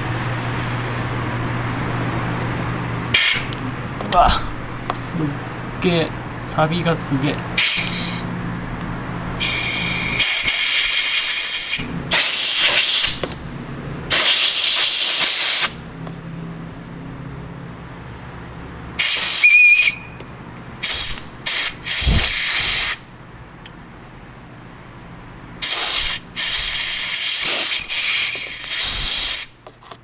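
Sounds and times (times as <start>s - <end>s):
compressed air blow gun hissing: 7.6s - 8.3s, 9.4s - 13.2s, 14.1s - 15.8s, 19.0s - 19.9s, 20.8s - 23.0s, 25.6s - 29.6s.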